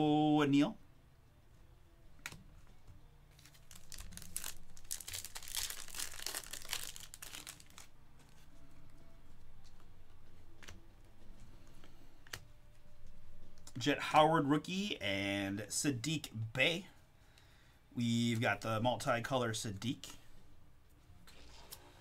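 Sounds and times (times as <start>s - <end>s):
foil wrapper tearing and crinkling: 3.4s - 7.9s.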